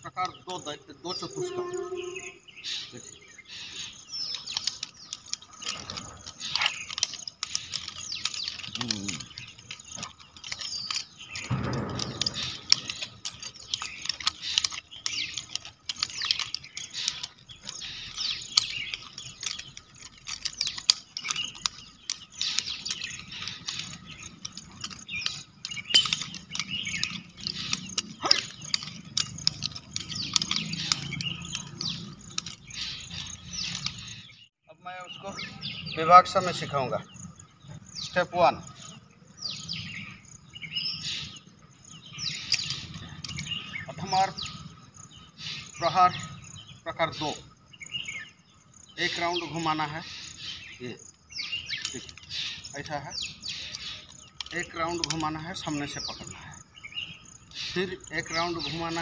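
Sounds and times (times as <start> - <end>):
birds chirping: 0.0 - 59.0
nunchaku rattling clicks: 0.1 - 34.5, 36.3 - 59.0.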